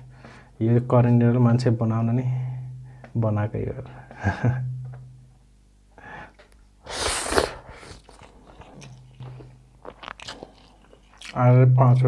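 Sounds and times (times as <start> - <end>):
person slurping noodles: 6.9 - 8.6
soft chewing clicks: 8.0 - 11.4.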